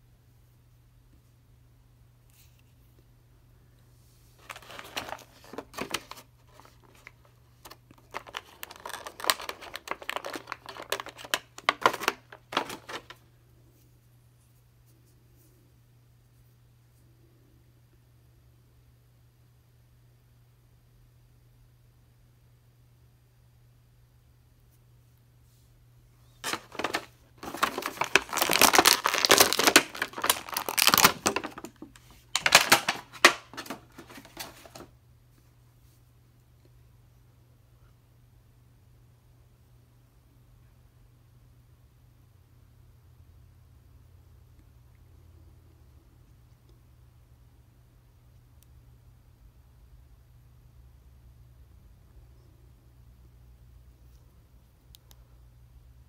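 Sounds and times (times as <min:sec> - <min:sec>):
plastic packaging crinkling: 0:04.4 - 0:13.2, 0:26.4 - 0:34.9.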